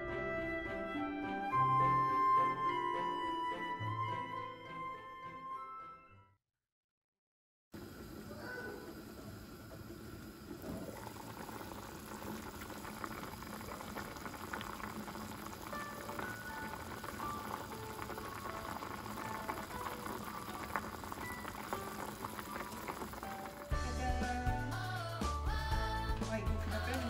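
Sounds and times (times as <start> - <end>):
soup boiling in a pot: 7.8 - 23.8.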